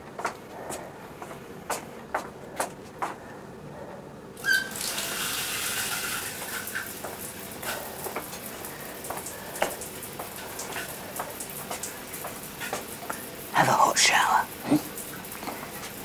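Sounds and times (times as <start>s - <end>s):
shower water running: 4.4s - 16.0s.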